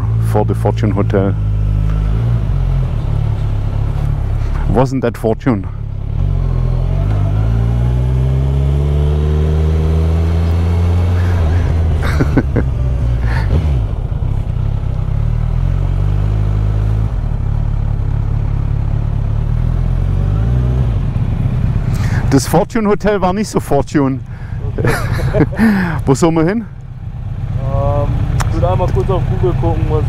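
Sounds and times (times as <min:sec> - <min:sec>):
motorcycle engine pulling away: 0:05.9 - 0:22.4, 0:26.9 - 0:30.0.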